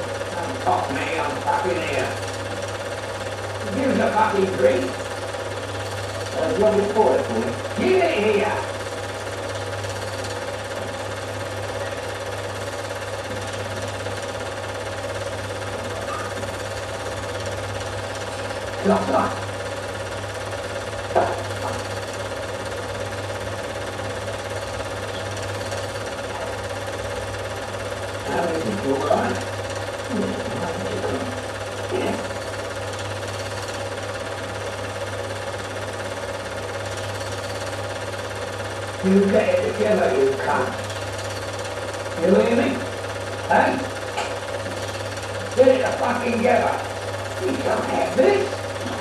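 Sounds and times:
constant low hum: 0.0s - 33.1s
film projector whirring and clattering: 0.0s - 49.0s.

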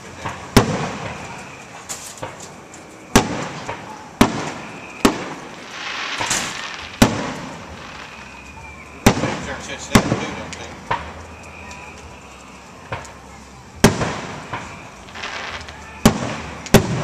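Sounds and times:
firework shells bursting: 0.0s - 17.0s
rolling echo: 0.0s - 17.0s
hiss: 4.4s - 8.8s.

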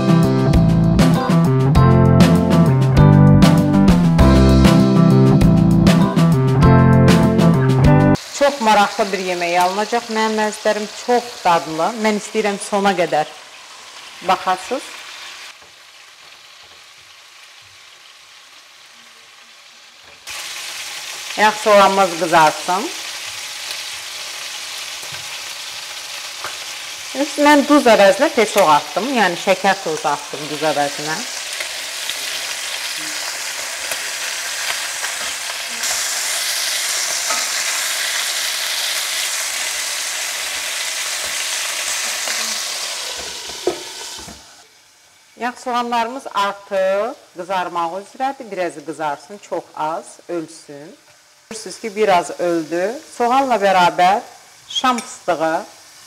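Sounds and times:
onion sizzling in oil: 4.0s - 56.0s
spatula stirring in pan: 36.9s - 38.0s.

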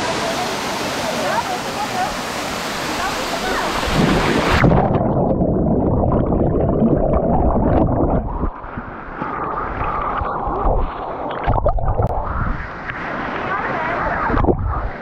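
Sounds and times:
muffled underwater bubbling: 3.7s - 12.7s, 14.2s - 15.0s.

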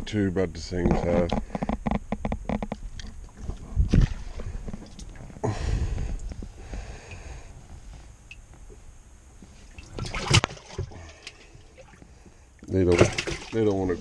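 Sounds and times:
water sloshing: 9.6s - 14.0s.

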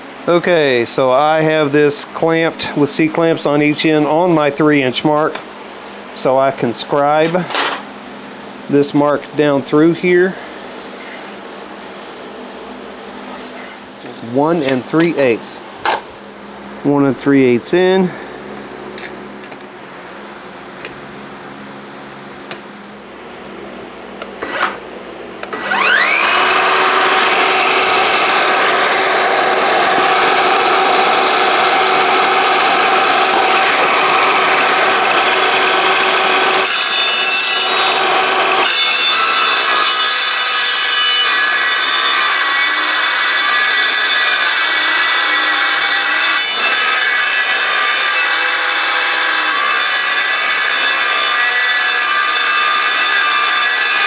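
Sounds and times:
electric saw cutting steel: 24.4s - 24.8s, 25.4s - 54.0s.

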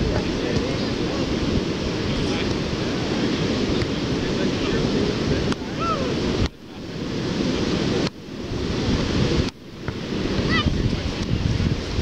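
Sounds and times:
ocean surf: 0.0s - 12.0s
wind buffeting microphone: 0.0s - 12.0s.

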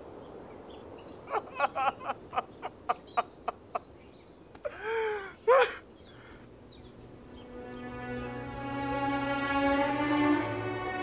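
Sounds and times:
man sobbing and wailing: 1.3s - 2.9s, 4.7s - 5.9s.

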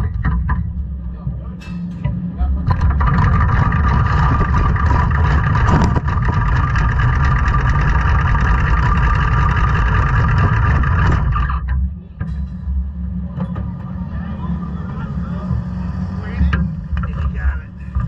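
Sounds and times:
race car engine rumble and rattle: 0.0s - 18.0s.

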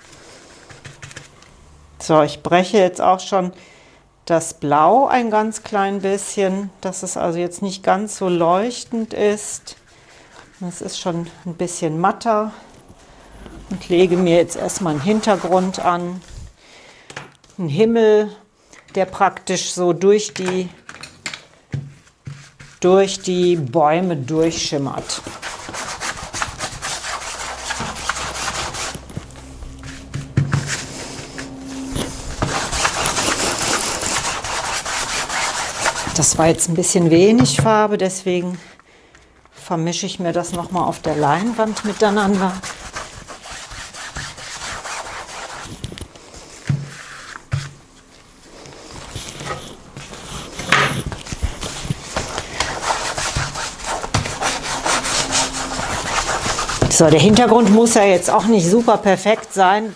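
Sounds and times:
paintbrush scrubbing on canvas: 13.3s - 16.4s, 22.0s - 23.8s, 24.4s - 37.2s, 40.5s - 59.6s.

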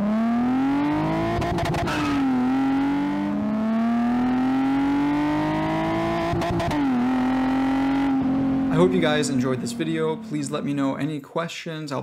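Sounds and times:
car engine revving through gears: 0.0s - 10.8s.

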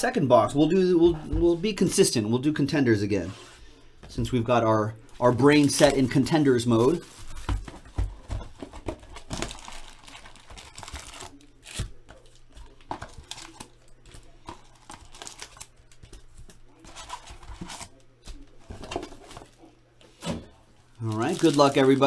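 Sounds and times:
foil packs crinkling: 5.2s - 19.7s, 20.8s - 22.0s.

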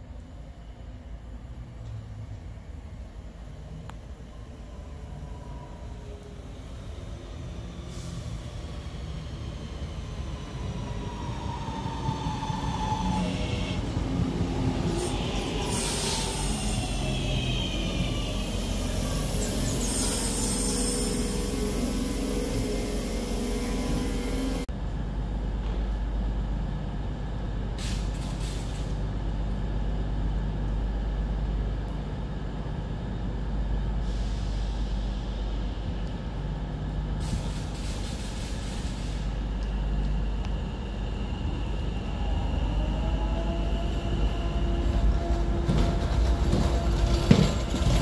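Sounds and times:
diesel train engine: 0.0s - 48.0s
train low rumble: 0.0s - 48.0s
electric train rising whine: 3.6s - 24.7s, 39.2s - 48.0s
air brake hisses: 34.0s - 34.9s, 37.2s - 39.4s.

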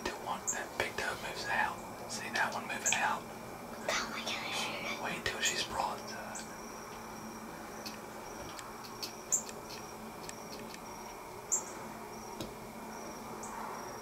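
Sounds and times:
crickets and insects chirping: 0.0s - 14.0s
faint clicks: 7.8s - 11.2s.

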